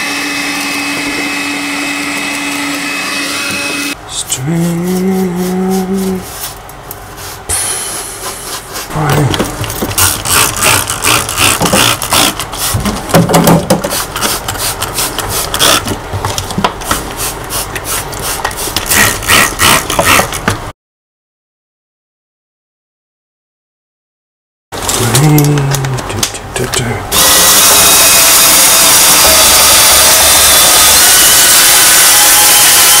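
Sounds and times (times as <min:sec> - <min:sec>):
vacuum cleaner whine: 0:00.0 - 0:06.2, 0:27.1 - 0:33.0
spray bottle hissing sprays: 0:16.9 - 0:18.8.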